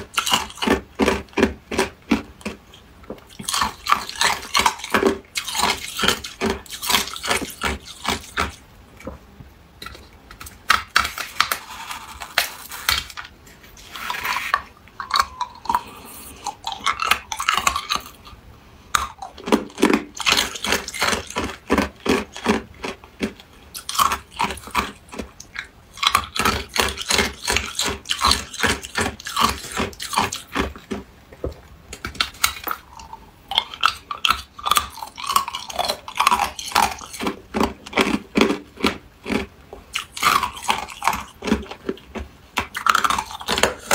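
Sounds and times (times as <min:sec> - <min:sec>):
ice cubes crunched by teeth: 0:10.4 - 0:15.9, 0:19.0 - 0:25.3, 0:32.1 - 0:43.9.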